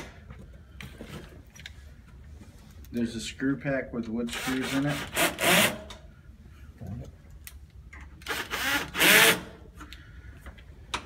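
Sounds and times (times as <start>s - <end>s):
drill driving screws into wood: 4.4s - 6.0s, 8.2s - 9.6s.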